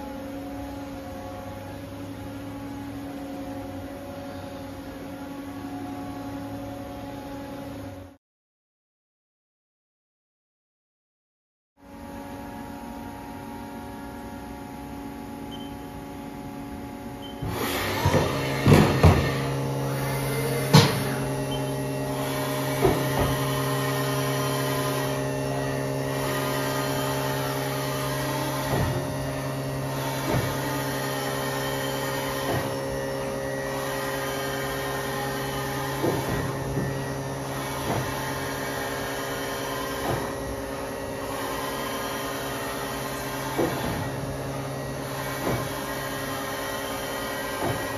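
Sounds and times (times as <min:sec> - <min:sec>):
machine hum with held tones: 0:00.0 - 0:08.2, 0:11.8 - 0:47.9.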